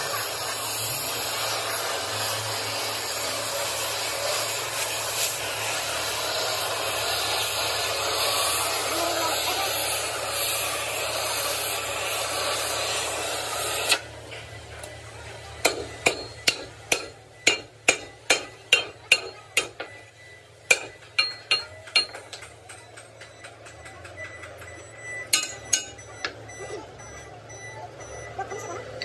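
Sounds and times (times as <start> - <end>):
loud steady hiss: 0.0 - 14.0
hammer striking steel: 15.6 - 26.4.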